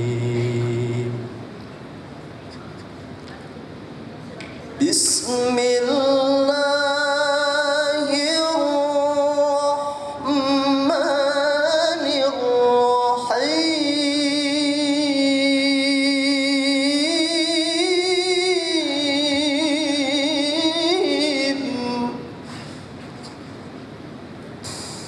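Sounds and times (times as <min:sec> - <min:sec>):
man reciting melodically: 0:00.0 - 0:01.4, 0:04.8 - 0:22.4.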